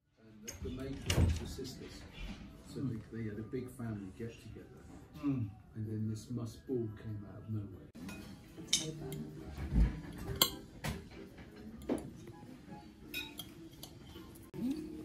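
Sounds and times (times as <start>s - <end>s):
cutlery clinking on plates: 8.0s - 14.6s.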